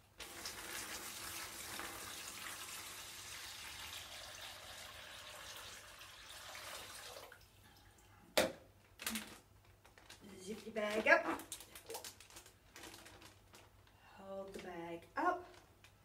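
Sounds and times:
water pouring into plastic bag: 0.2s - 7.4s, 11.4s - 13.8s.

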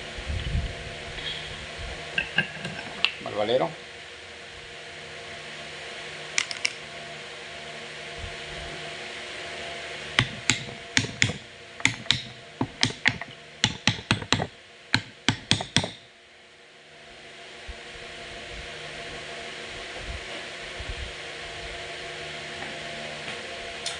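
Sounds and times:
steady background hum: 0.0s - 23.9s
sharp metallic clicks and taps: 10.2s - 16.0s.

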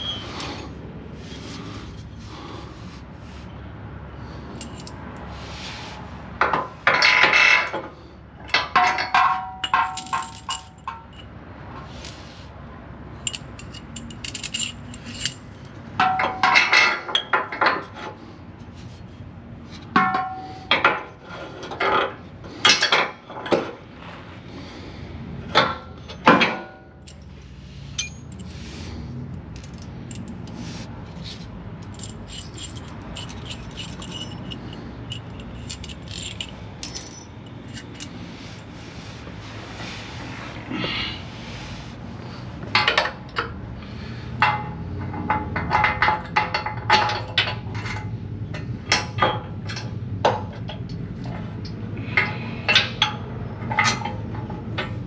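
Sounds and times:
metal clinking and rattling: 4.6s - 5.0s, 8.5s - 11.3s, 13.2s - 16.9s, 29.4s - 38.2s.

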